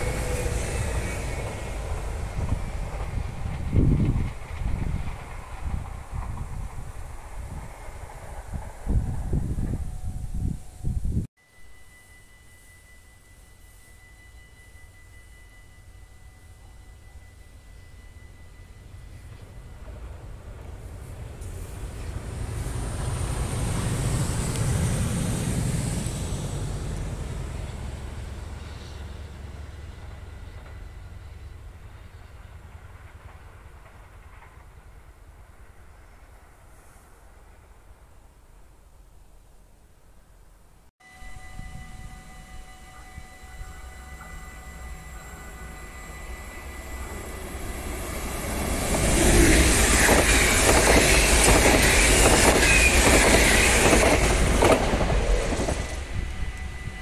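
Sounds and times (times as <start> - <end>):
train wheels clacking: 0.0 - 9.9, 42.2 - 57.0
electric train rumbling on track: 0.0 - 57.0.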